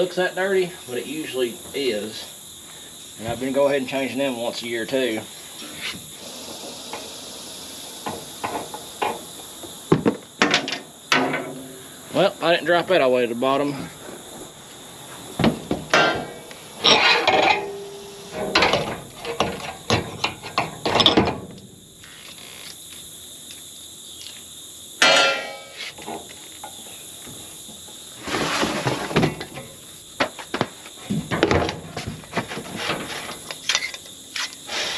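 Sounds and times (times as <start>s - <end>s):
knocks and scrapes of air filters: 28.2s - 34.9s.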